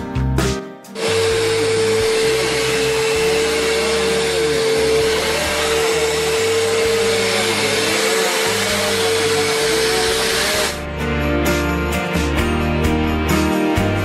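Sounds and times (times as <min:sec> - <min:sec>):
music: 0:00.0 - 0:14.0
vacuum cleaner running: 0:01.0 - 0:10.8.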